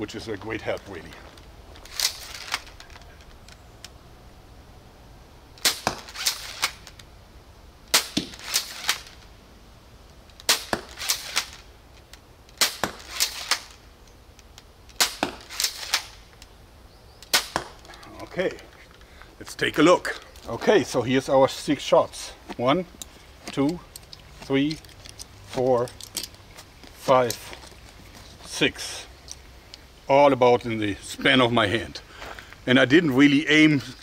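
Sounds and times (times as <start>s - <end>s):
crossbow shots snapping: 1.8s - 4.0s, 5.6s - 7.1s, 7.9s - 9.2s, 10.3s - 13.8s, 14.4s - 16.5s, 17.2s - 18.0s.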